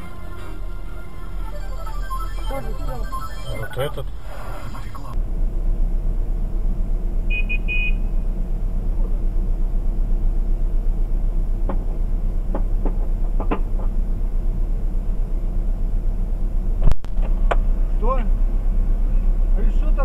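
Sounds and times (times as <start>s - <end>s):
high-pitched horn beeps: 0.0s - 5.2s
car engine idling: 0.0s - 20.0s.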